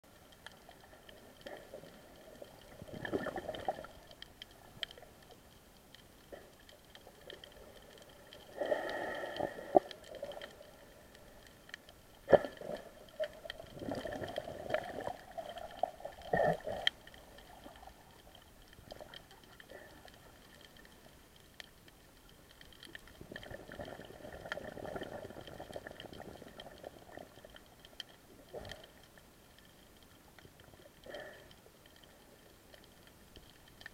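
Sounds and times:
underwater water movement: 0:00.0 - 0:33.9.

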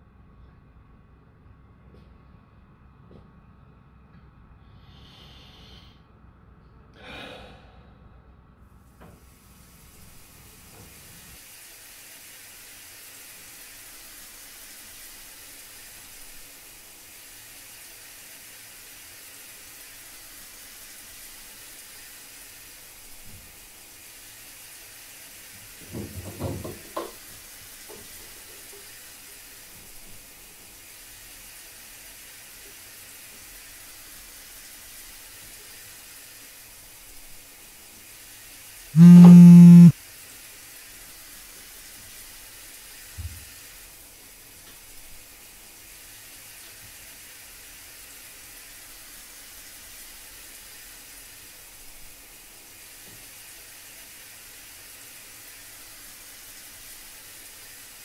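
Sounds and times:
running water hissing: 0:04.7 - 0:05.9, 0:09.0 - 0:58.0
person sighing: 0:07.0 - 0:07.9, 0:39.0 - 0:39.9.

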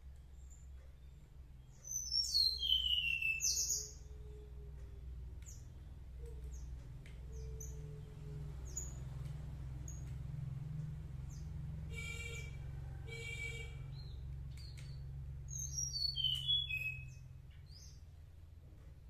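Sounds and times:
low steady hum: 0:00.0 - 0:19.0
bird chirping and whistling: 0:01.8 - 0:04.1, 0:15.5 - 0:17.9.

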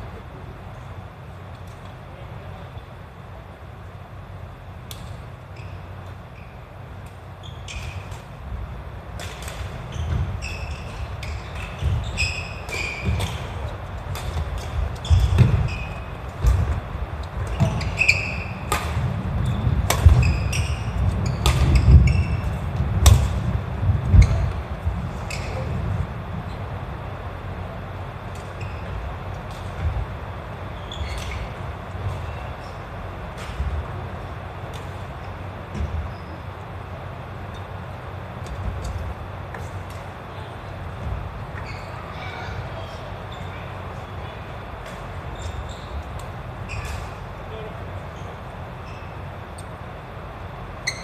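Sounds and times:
shoes squeaking: 0:04.9 - 0:08.4, 0:09.2 - 0:27.1, 0:27.7 - 0:36.7, 0:37.4 - 0:49.9, 0:50.6 - 0:51.0
racket hitting shuttlecock: 0:09.1 - 0:10.2, 0:12.6 - 0:16.8, 0:17.4 - 0:19.1, 0:19.8 - 0:23.5.

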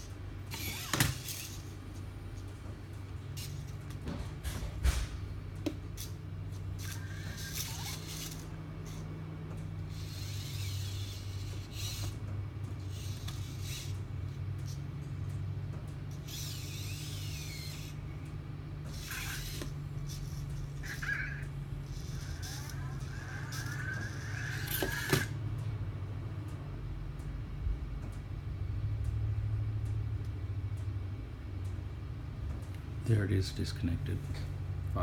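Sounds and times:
toy robot motors whirring: 0:00.0 - 0:25.4
low electrical hum: 0:00.0 - 0:35.0.

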